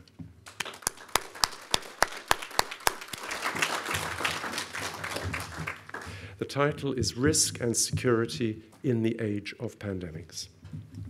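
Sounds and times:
audience applause: 0.5s - 6.2s.

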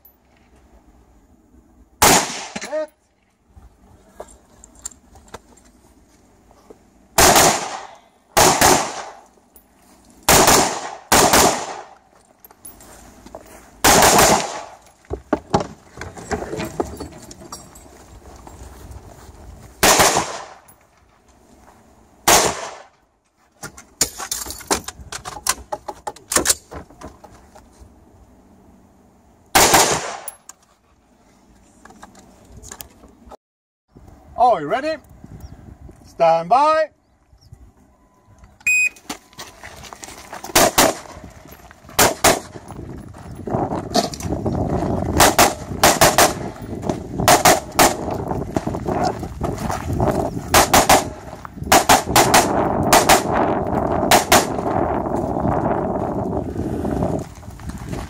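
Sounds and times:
rifle shots: 2.0s - 2.7s, 7.2s - 9.3s, 10.3s - 12.0s, 13.8s - 14.8s, 19.8s - 20.6s, 22.2s - 22.9s, 29.6s - 30.3s, 40.5s - 41.2s, 42.0s - 42.6s, 45.2s - 46.6s, 47.2s - 48.1s, 50.5s - 53.4s, 54.1s - 54.7s.

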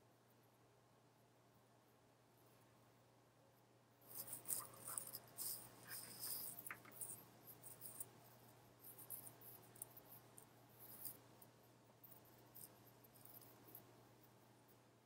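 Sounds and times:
low electrical hum: 0.0s - 15.0s
scratching and rustling: 4.0s - 8.1s.

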